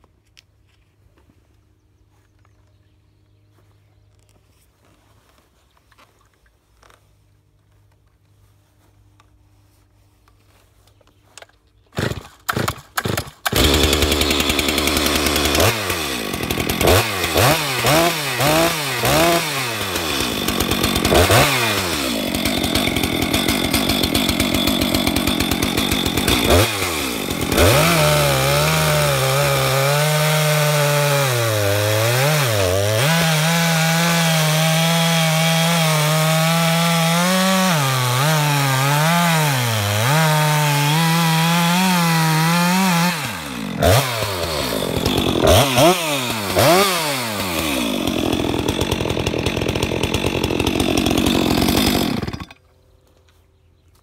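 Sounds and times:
chainsaw starting and revving: 12.0 - 52.6
chainsaw cutting through log: 12.0 - 52.7.

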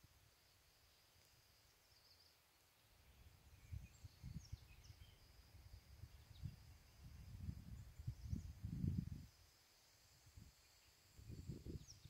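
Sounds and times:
faint chirps: 0.0 - 12.0
insects humming in grass: 0.0 - 12.0
wind buffeting microphone: 3.6 - 5.2, 5.9 - 9.4, 11.2 - 12.0.

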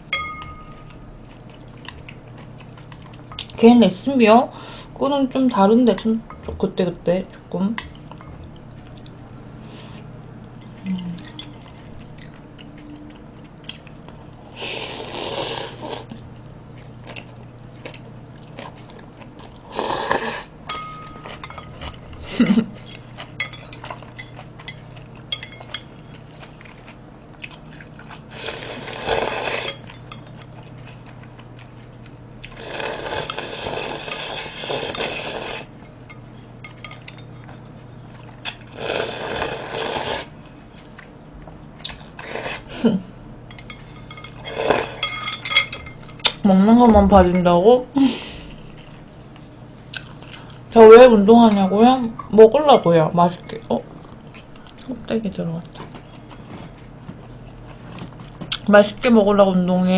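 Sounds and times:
loud slurping of noodles: 14.6 - 16.0, 38.7 - 40.3.

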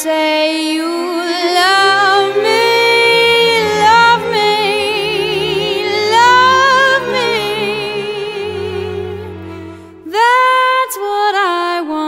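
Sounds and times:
woman singing with vibrato: 0.0 - 12.0
low slow accompaniment: 1.5 - 10.5.

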